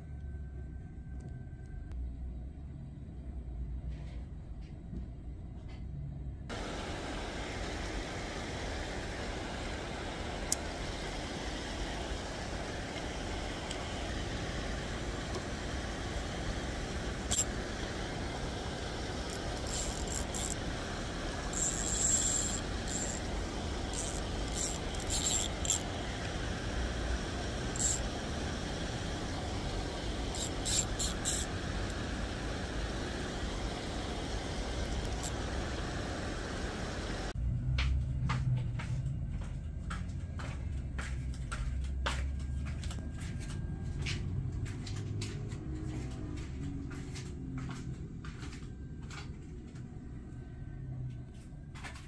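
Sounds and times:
low hum: 0.0s - 52.0s
water rushing over weir: 6.5s - 37.4s.

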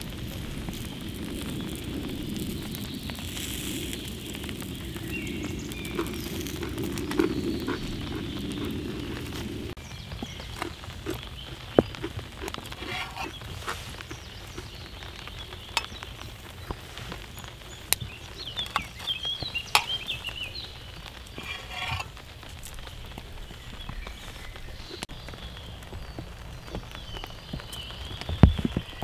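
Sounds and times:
rain hiss: 0.0s - 29.0s
knife scraping frying pan: 12.4s - 13.8s, 21.4s - 22.1s.

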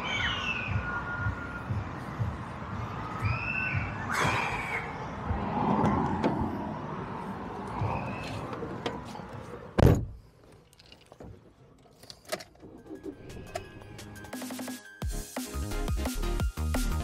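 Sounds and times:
car passing: 4.1s - 9.8s.

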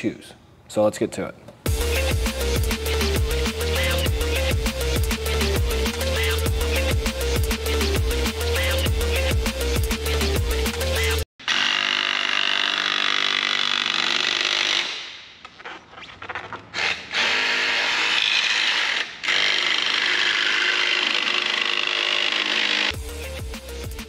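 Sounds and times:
music with heavy beat: 1.7s - 11.2s, 22.9s - 24.0s.

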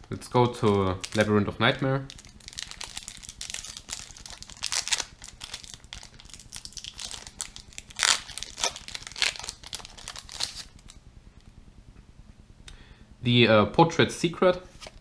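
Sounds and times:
wrapper crinkling open: 0.0s - 11.0s.

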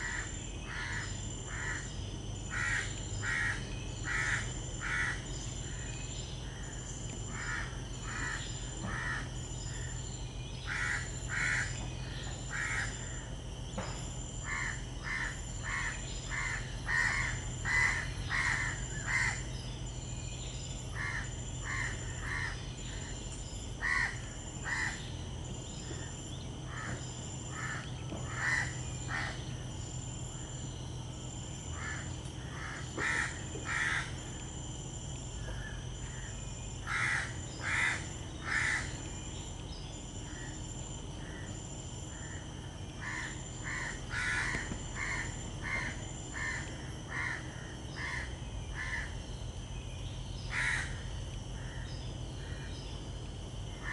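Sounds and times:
bird calling: 0.0s - 29.7s, 43.0s - 53.1s.

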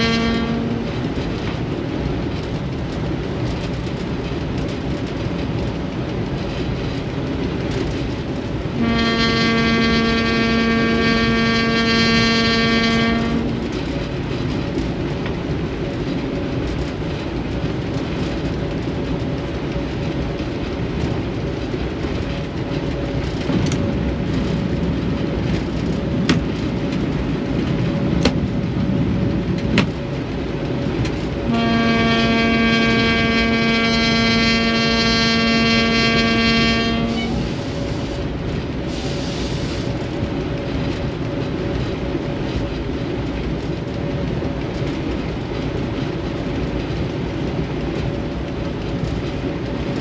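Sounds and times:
locomotive horn blast: 0.0s - 1.0s, 8.8s - 13.8s, 31.5s - 38.1s
diesel locomotive engine: 0.0s - 50.0s.

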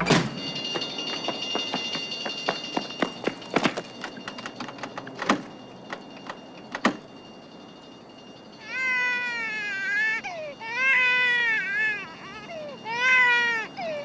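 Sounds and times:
sharp knocks and clicks: 0.0s - 7.0s
high ringing tone: 0.0s - 14.0s
long wavering cry: 7.6s - 14.0s.

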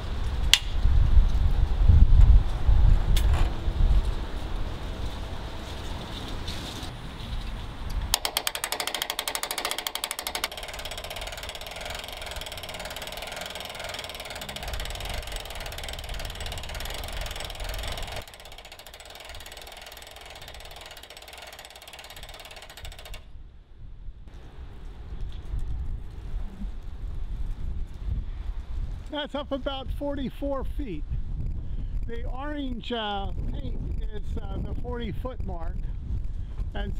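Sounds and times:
winch ratchet clicking: 8.1s - 23.3s.

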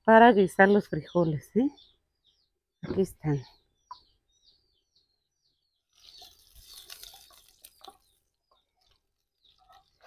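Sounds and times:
small bird chirping: 0.0s - 10.0s
lard crackling and hissing: 6.0s - 8.0s.

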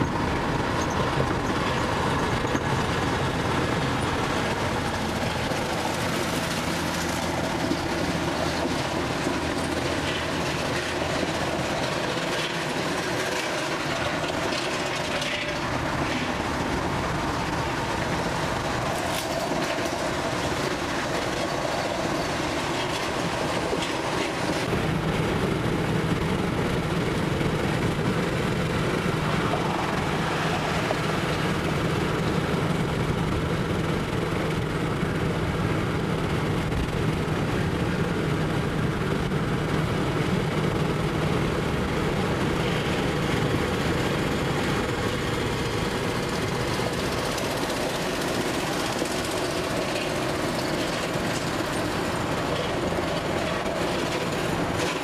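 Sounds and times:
tyres on pavement: 0.0s - 34.3s
low diesel engine drone: 0.0s - 55.0s.

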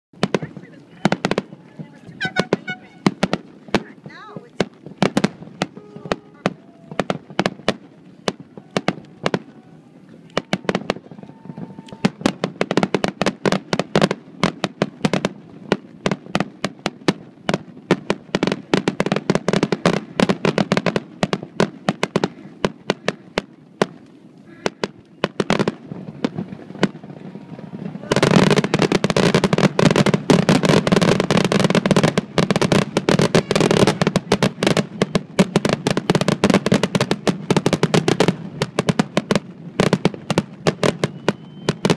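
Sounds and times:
fireworks bursting with bangs: 0.1s - 41.9s.

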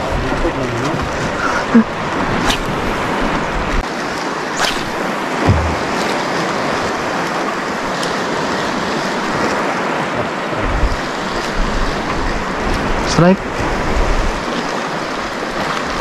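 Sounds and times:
sea waves: 0.0s - 16.0s
wind: 0.0s - 16.0s
low thump: 5.4s - 6.3s.

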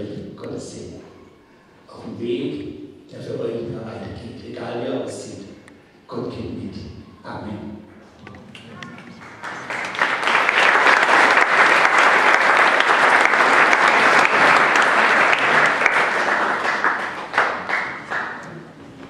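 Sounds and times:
congregation applauding: 8.5s - 18.8s.

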